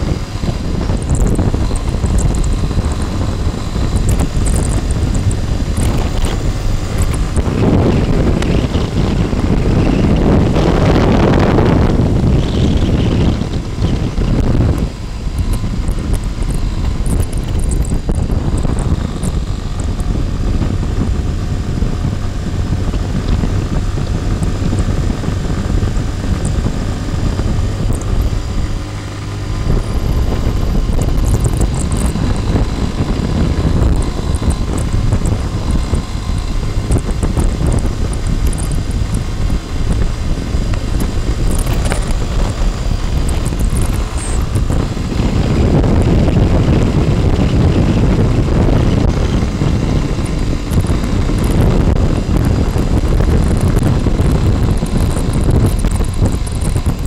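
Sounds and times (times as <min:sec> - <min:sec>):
motorcycle engine running: 0:00.0 - 0:57.0
wind rush on microphone: 0:00.0 - 0:57.0.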